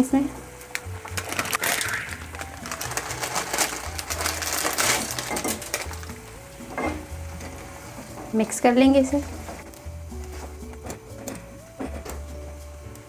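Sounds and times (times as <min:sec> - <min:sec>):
water boiling in a pan: 0:00.6 - 0:13.0
crinkly plastic packet: 0:00.7 - 0:06.2.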